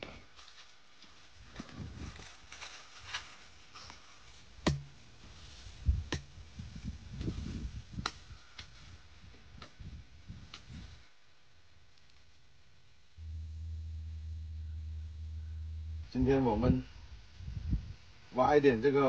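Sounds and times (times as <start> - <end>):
hoe striking soil and straw: 4.7 - 5.0.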